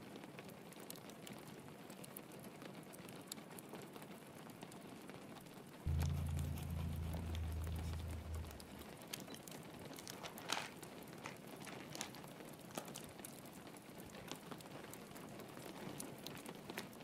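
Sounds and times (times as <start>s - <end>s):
deep low hum: 5.9s - 8.8s.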